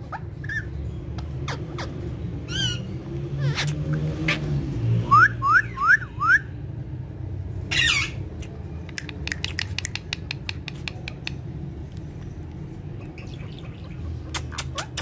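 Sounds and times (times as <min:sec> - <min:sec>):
parakeet squawk: 0:00.0 - 0:06.4, 0:07.7 - 0:08.3, 0:12.9 - 0:15.0
parakeet chirps: 0:00.0 - 0:06.5, 0:07.7 - 0:11.4, 0:12.9 - 0:15.0.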